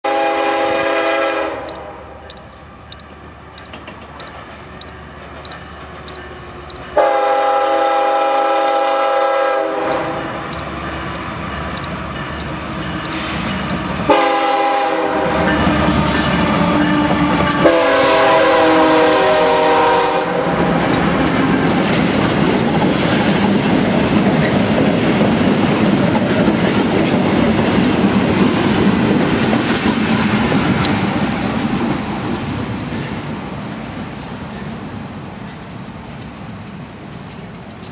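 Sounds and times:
locomotive air horn blasts: 0:00.0 - 0:02.2, 0:07.0 - 0:10.5, 0:13.1 - 0:20.7
wheels clattering on rails: 0:01.7 - 0:07.2, 0:09.8 - 0:14.4, 0:15.0 - 0:18.3, 0:20.5 - 0:37.9.

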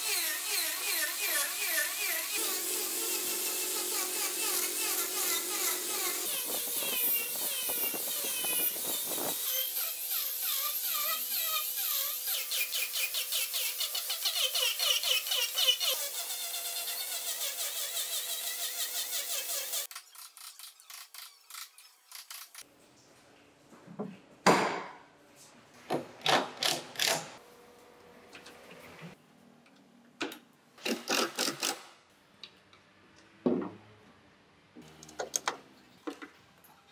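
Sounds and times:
angle grinder sanding wood: 0:00.0 - 0:22.6.

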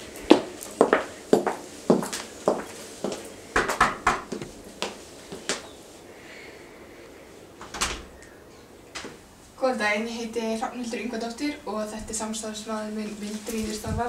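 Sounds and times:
footsteps on hard ground: 0:00.3 - 0:03.2, 0:04.3 - 0:05.6.

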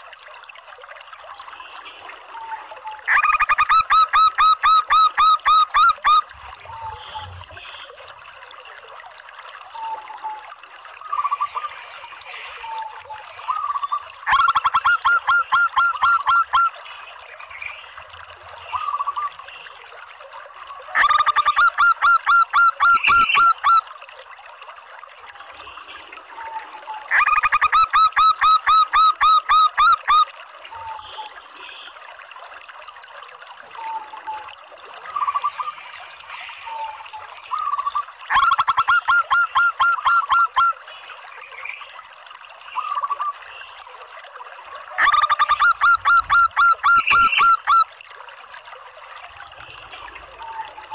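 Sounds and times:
dove calling rapid notes: 0:03.1 - 0:06.2, 0:13.6 - 0:16.7, 0:21.0 - 0:23.8, 0:27.1 - 0:30.3, 0:37.5 - 0:40.8, 0:45.0 - 0:47.9.

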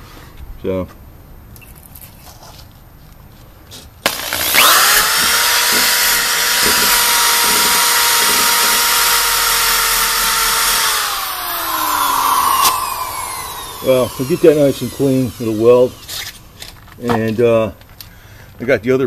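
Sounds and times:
drill motor whine: 0:04.1 - 0:16.8.

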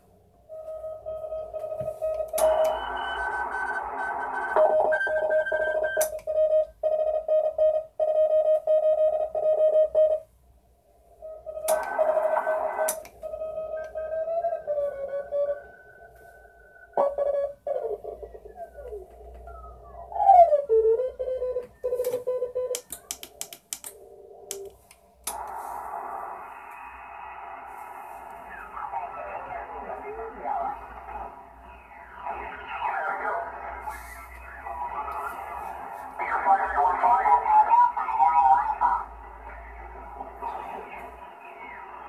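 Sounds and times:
morse code tone: 0:00.5 - 0:10.3, 0:20.5 - 0:22.9
fainter higher-pitched morse station: 0:00.6 - 0:10.2
receiver hiss: 0:11.6 - 0:13.9, 0:21.8 - 0:42.0
sharp clicks: 0:22.7 - 0:25.6.

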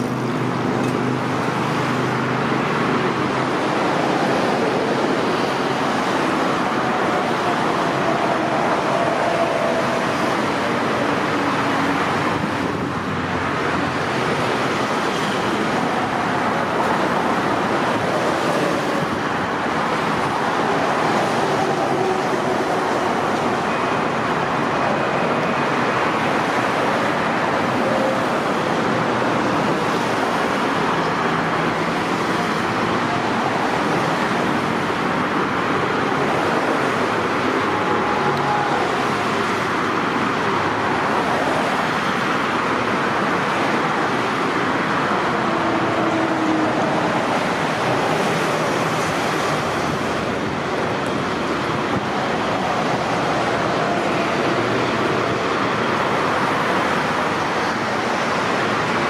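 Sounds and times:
freeway traffic rushing: 0:00.0 - 0:59.0.

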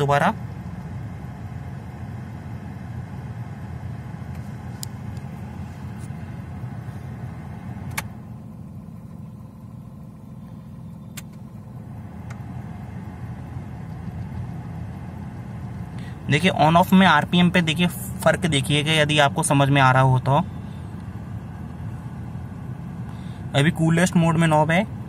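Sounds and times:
car engine idling: 0:00.0 - 0:25.0
air conditioning switch click: 0:07.8 - 0:08.2, 0:11.1 - 0:11.4.

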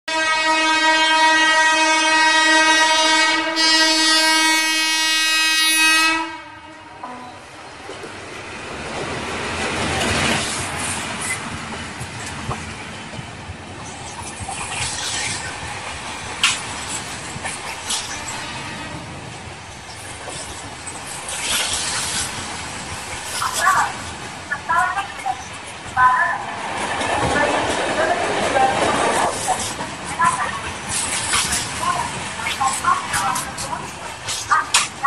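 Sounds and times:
train air horn honking: 0:00.1 - 0:07.4, 0:18.1 - 0:19.2
train rushing past: 0:07.2 - 0:35.0.

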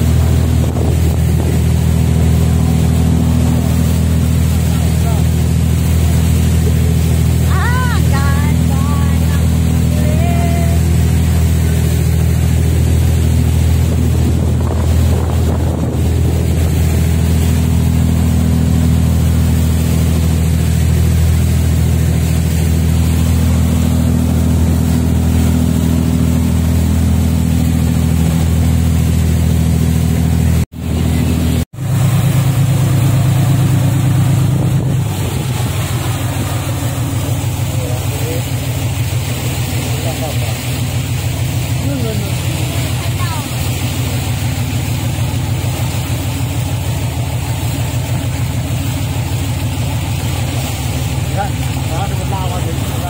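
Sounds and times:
wind buffeting microphone: 0:00.0 - 0:04.6, 0:12.2 - 0:20.4, 0:31.2 - 0:39.9
boat diesel engine droning: 0:00.0 - 0:53.0
rush of boat wake: 0:00.0 - 0:53.0.

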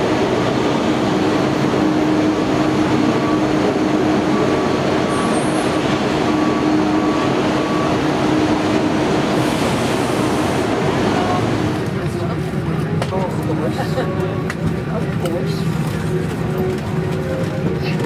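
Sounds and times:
jet aircraft drone: 0:00.0 - 0:12.0.

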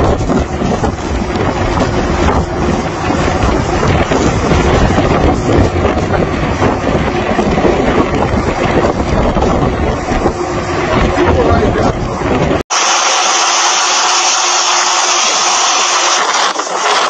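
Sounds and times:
wind buffeting microphone: 0:00.0 - 0:12.7
boat running in heavy seas: 0:00.0 - 0:17.0.

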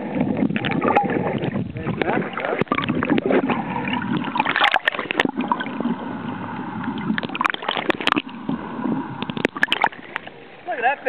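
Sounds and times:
muffled underwater sloshing: 0:00.0 - 0:11.0
sharp clicks and pops: 0:07.0 - 0:08.3, 0:09.2 - 0:10.3.

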